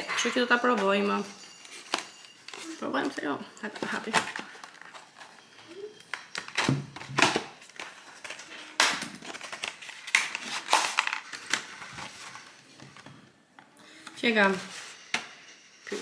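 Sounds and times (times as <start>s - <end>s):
packaging rustling and crackling: 1.5s - 13.1s.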